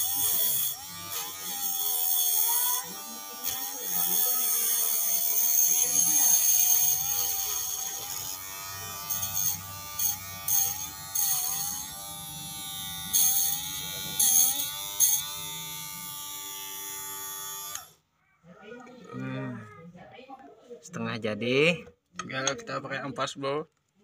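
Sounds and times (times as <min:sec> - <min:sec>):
small electric motor whining: 0:00.0 - 0:18.0.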